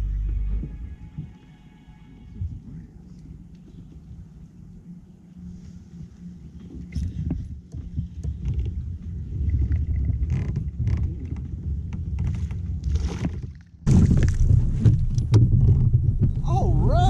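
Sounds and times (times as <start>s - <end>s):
low rumble: 0.0s - 12.9s, 13.9s - 17.0s
rush of noise: 16.3s - 17.0s.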